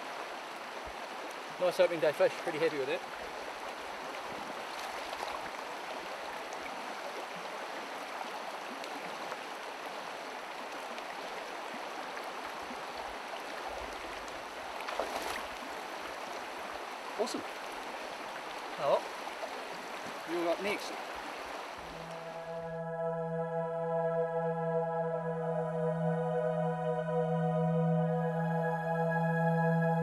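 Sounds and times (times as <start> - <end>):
river flowing over stones: 0.0 - 22.4
boot splashing through water: 14.8 - 15.6.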